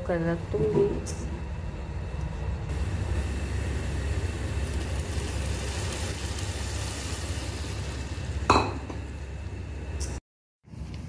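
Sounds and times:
fried onions sizzling: 0:02.7 - 0:09.4.

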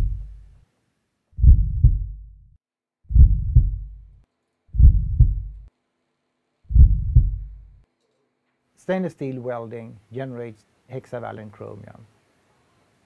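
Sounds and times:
heartbeat thumps: 0:00.0 - 0:00.4, 0:01.4 - 0:02.4, 0:03.1 - 0:04.1, 0:04.8 - 0:05.7, 0:06.7 - 0:07.8.

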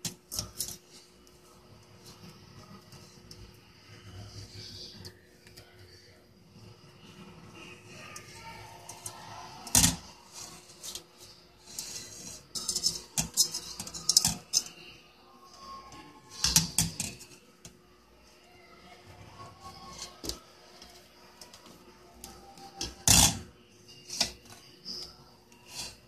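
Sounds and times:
knife scraping on metal mesh: 0:11.6 - 0:14.7.

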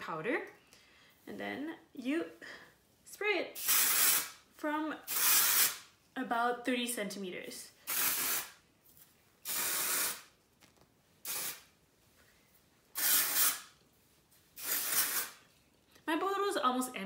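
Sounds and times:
aerosol can spraying hiss: 0:03.6 - 0:04.4, 0:05.1 - 0:05.8, 0:07.9 - 0:08.6, 0:09.4 - 0:10.3, 0:11.2 - 0:11.7, 0:13.0 - 0:13.7, 0:14.6 - 0:15.4.

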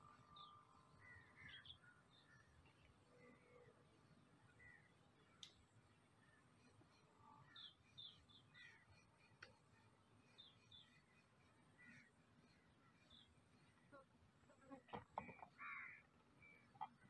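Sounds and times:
small click: 0:05.4 - 0:05.6.

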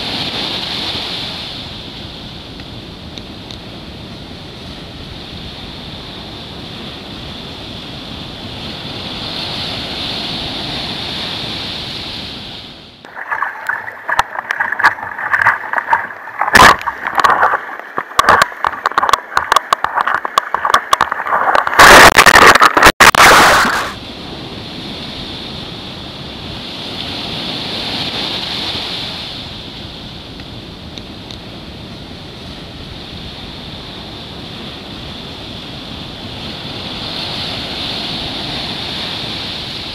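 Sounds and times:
surf breaking on shore: 0:08.5 - 0:30.1
water splashing over camera: 0:13.0 - 0:24.0.

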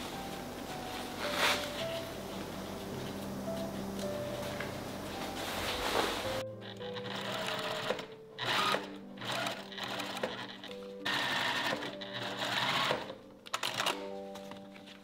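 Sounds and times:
sewing machine stitching: 0:06.6 - 0:14.0.

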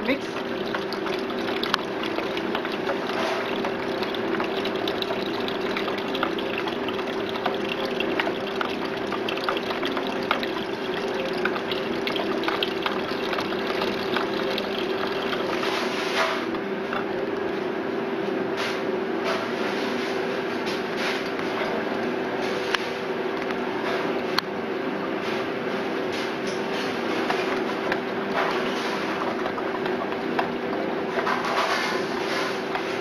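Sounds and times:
liquid pouring into a bucket: 0:00.0 - 0:17.5, 0:26.8 - 0:33.0
machine hum: 0:00.0 - 0:18.2.

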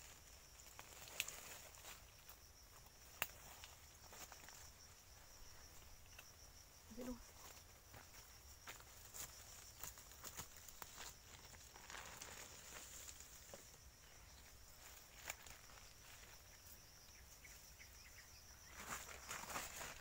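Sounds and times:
high insect buzz: 0:00.0 - 0:20.0
twig snaps: 0:03.1 - 0:03.4
footsteps rustling through dry leaves: 0:08.7 - 0:13.5, 0:18.8 - 0:20.0.

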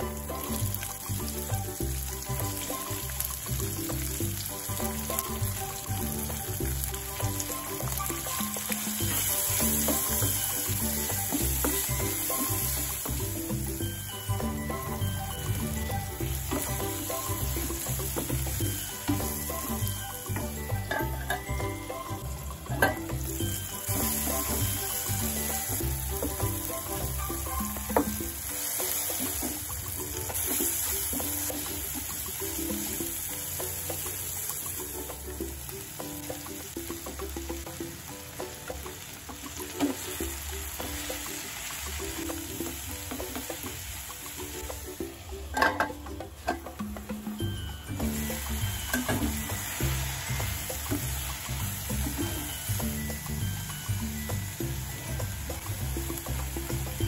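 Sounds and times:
vegetables sizzling in oil: 0:00.0 - 0:57.0
metal lid clattering: 0:45.5 - 0:46.6.

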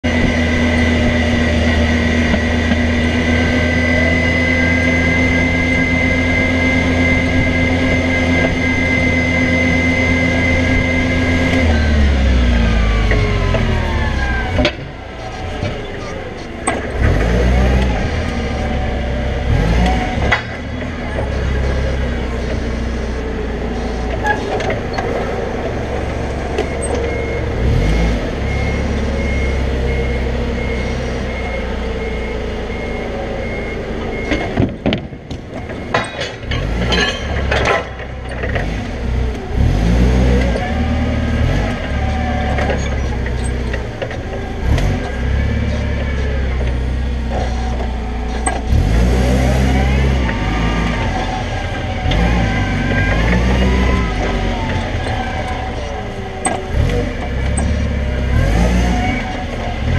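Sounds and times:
forklift engine revving: 0:00.0 - 0:59.9
high reversing beeper: 0:25.2 - 0:37.8
metal clanks: 0:34.4 - 0:38.6.

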